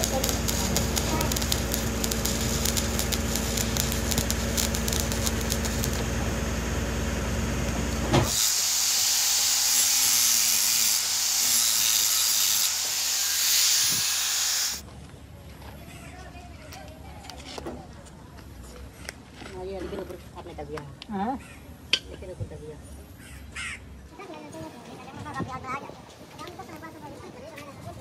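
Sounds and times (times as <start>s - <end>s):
angle grinder grinding metal: 0.0s - 6.1s, 8.2s - 14.8s
arc welding crackling: 0.0s - 14.8s.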